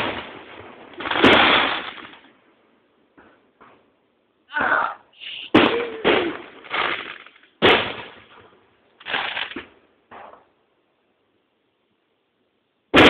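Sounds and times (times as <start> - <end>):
fireworks bursting with echo: 0.0 - 2.4, 5.3 - 10.6.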